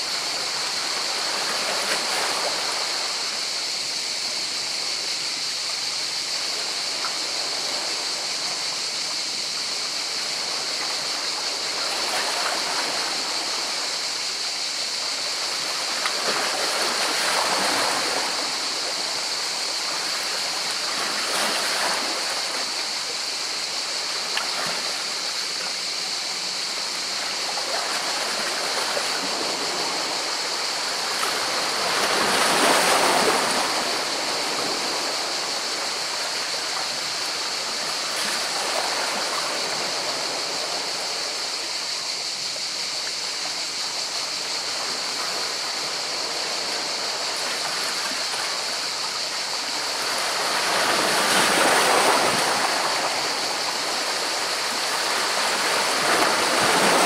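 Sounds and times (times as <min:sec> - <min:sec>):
surf hiss: 0:00.0 - 0:57.0
sea water breaking over rocks: 0:50.0 - 0:57.0.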